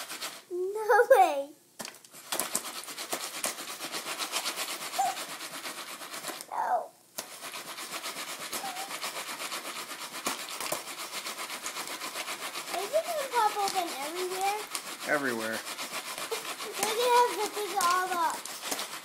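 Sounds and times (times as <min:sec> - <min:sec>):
popcorn kernels popping: 0:01.8 - 0:19.0
pan scraping on stovetop: 0:07.2 - 0:19.0.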